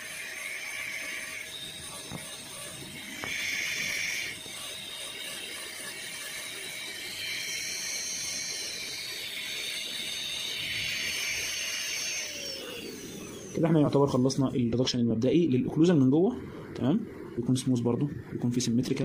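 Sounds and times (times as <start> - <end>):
dental drill whining: 0.0 - 14.7.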